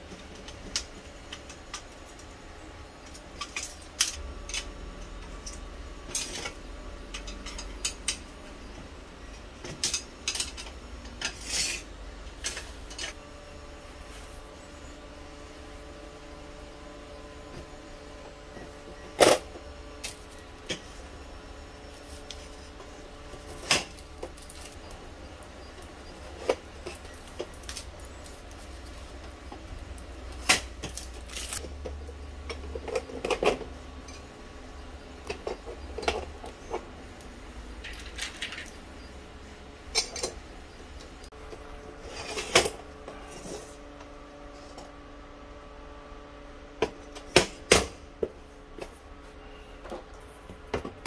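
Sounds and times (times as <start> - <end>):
faint steady hum: 0.0 - 51.0
metal frame pieces clicking and clinking: 5.3 - 8.2, 9.6 - 13.2, 37.8 - 38.8.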